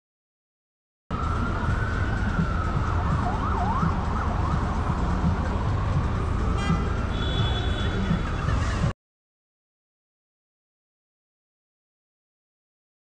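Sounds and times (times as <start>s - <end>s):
emergency vehicle siren wailing: 1.1s - 8.9s
city traffic rumble: 1.1s - 9.0s.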